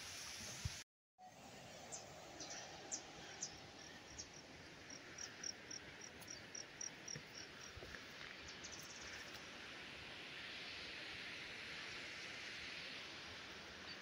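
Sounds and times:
steady outdoor hiss: 0:00.0 - 0:14.0
insects chirping: 0:03.3 - 0:07.9.

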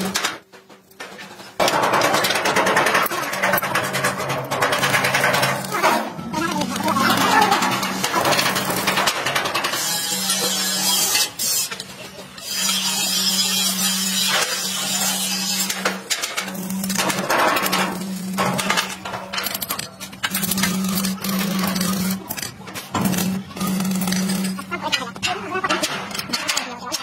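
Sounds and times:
arc welding crackling sizzle: 0:03.0 - 0:22.4.

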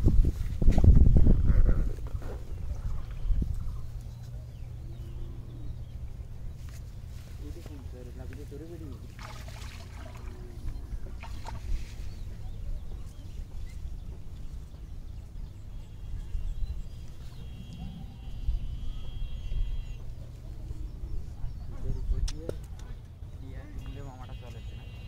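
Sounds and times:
wind rumbling on microphone: 0:00.0 - 0:06.7, 0:09.9 - 0:23.4
water splashing and dripping: 0:09.0 - 0:12.0.

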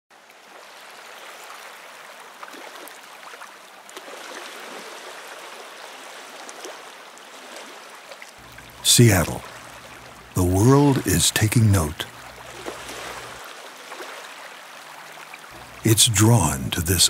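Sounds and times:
waves lapping on pebbles: 0:00.3 - 0:08.6, 0:12.0 - 0:15.8.

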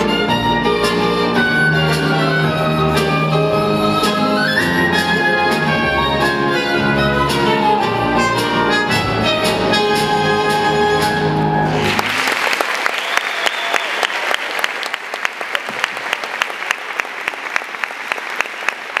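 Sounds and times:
audience applause: 0:11.7 - 0:19.0.

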